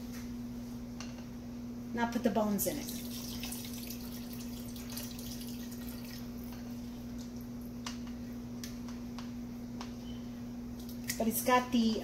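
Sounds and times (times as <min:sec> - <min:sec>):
steady low hum: 0:00.0 - 0:12.0
broth dripping into pot: 0:02.8 - 0:07.6.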